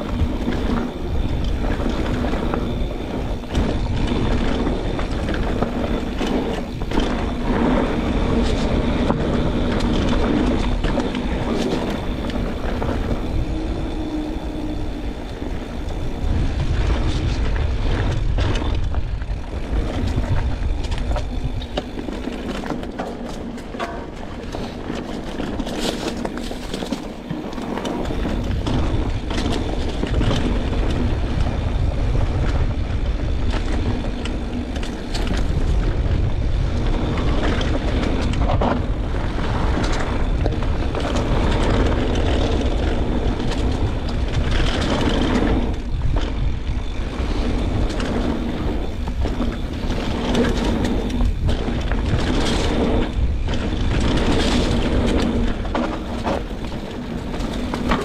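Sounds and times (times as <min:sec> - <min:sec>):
bike clicks and knocks: 0:00.0 - 0:58.0
bike rolling over dirt and rock: 0:00.0 - 0:58.0
wind buffeting microphone: 0:00.0 - 0:58.0.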